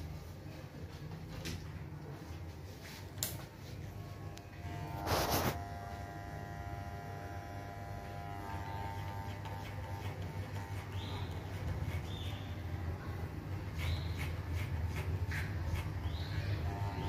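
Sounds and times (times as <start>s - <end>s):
electric hair clippers buzzing: 4.0s - 11.0s, 16.6s - 17.0s.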